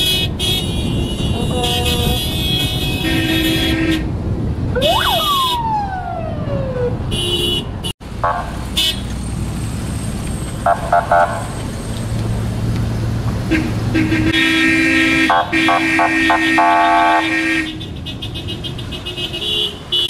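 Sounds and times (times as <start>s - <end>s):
car horns honking: 0.0s - 4.1s, 7.1s - 9.1s, 10.6s - 11.5s, 13.5s - 20.0s
engine and road noise: 0.0s - 20.0s
siren-like sweeping tone: 4.8s - 7.0s.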